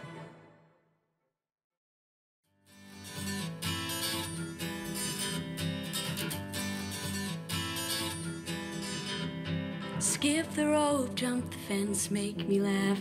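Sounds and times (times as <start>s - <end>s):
pop song with strummed guitar: 2.7s - 13.0s.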